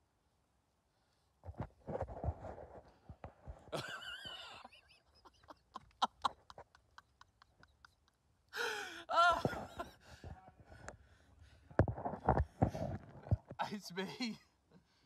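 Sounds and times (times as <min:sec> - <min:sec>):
man laughing breathlessly: 0:03.7 - 0:10.4.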